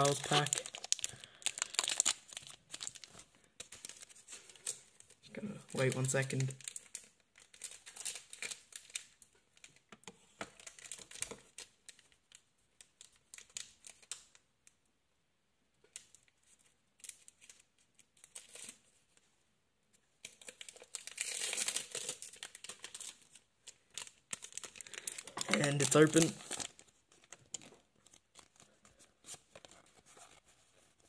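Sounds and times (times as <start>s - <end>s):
foil wrapper crinkling and tearing: 0.0s - 4.8s, 5.7s - 9.2s, 20.3s - 30.4s.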